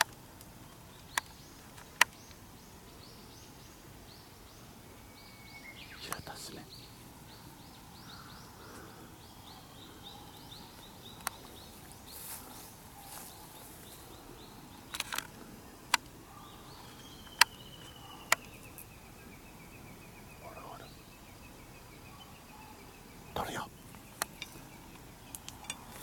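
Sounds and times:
sharp clicks or snaps: 14.9s - 15.3s.

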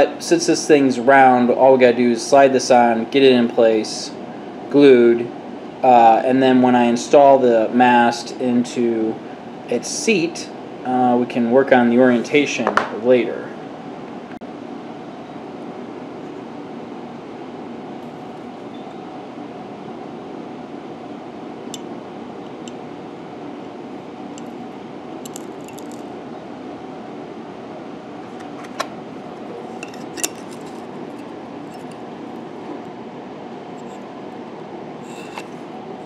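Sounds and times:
room hum: 0.0s - 36.0s
small metallic clicks: 25.2s - 26.0s.

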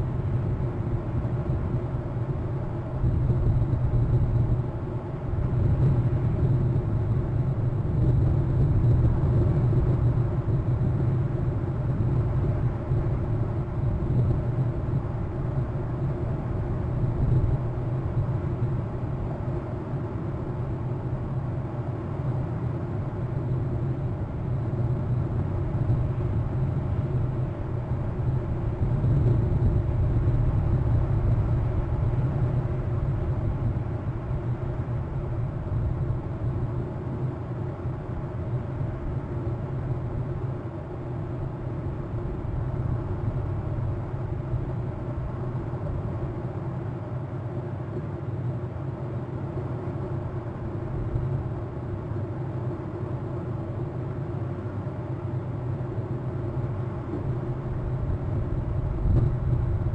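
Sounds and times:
low outdoor rumble: 0.0s - 59.9s.

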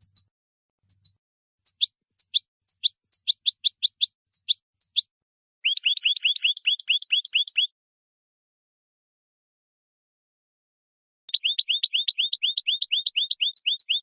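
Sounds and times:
bird chirping and trilling: 0.0s - 0.3s, 0.9s - 7.7s, 11.3s - 14.0s.

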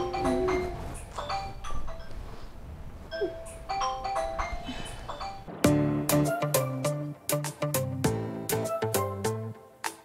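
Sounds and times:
light chiming melody: 0.0s - 5.5s
music with bass and steady beat: 5.6s - 9.5s.

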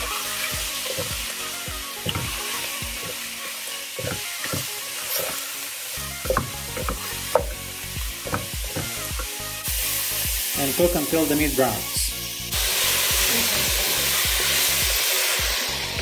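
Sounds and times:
spatula scraping a pan: 0.0s - 1.4s, 2.0s - 5.6s
meat sizzling in hot fat: 0.0s - 16.0s.

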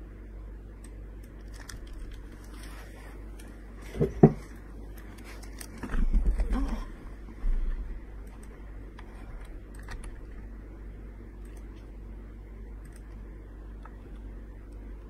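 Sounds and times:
steady low hum: 0.0s - 15.0s
computer keys clicking: 8.2s - 10.4s, 11.4s - 11.9s, 12.8s - 14.8s.

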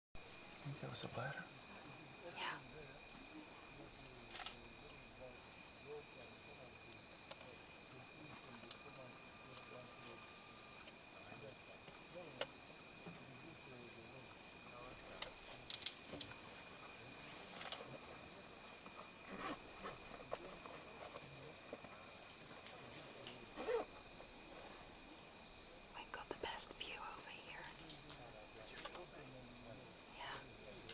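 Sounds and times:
insects chirring: 0.2s - 30.9s
sharp clicks and cracks: 15.2s - 16.4s.

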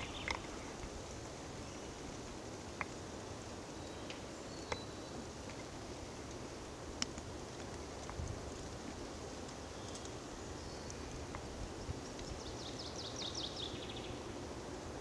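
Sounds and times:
songbird singing: 0.0s - 6.3s, 9.5s - 15.0s
background hiss: 0.0s - 15.0s.

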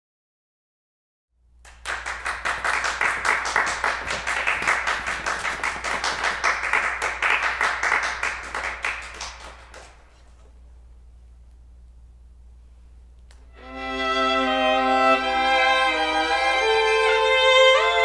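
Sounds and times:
hand clapping: 1.6s - 10.6s
low steady hum: 8.4s - 17.5s.

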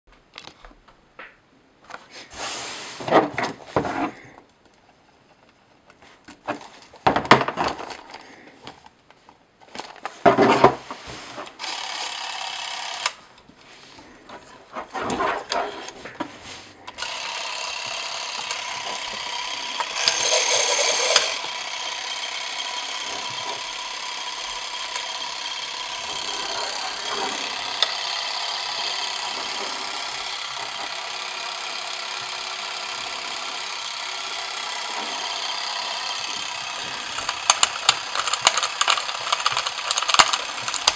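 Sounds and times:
camera motor whirring: 11.6s - 13.2s, 16.9s - 40.9s
film cartridge clicks and knocks: 36.4s - 40.9s.

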